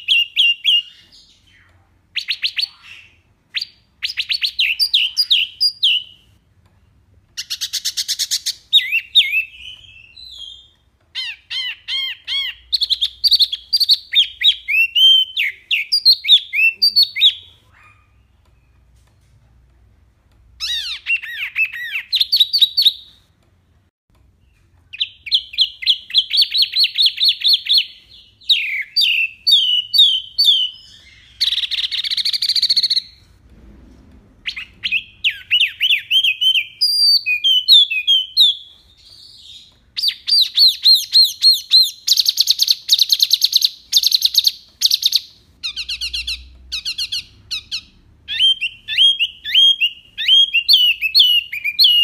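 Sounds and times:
songbird whistling trills: 34.5 - 52.0.

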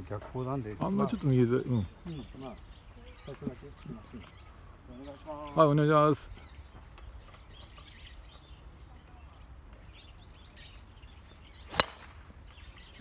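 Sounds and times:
birds chirping: 0.0 - 13.0
golf ball struck off tee: 11.7 - 12.3.

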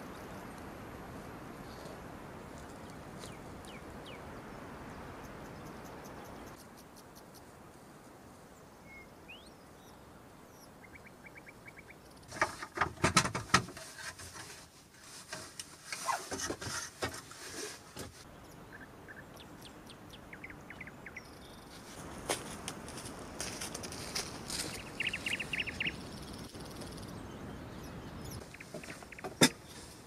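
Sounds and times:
bird chirps: 8.8 - 12.3, 18.3 - 21.8, 24.7 - 30.0
sharp knocks and scraping: 12.3 - 18.3, 28.5 - 30.0.

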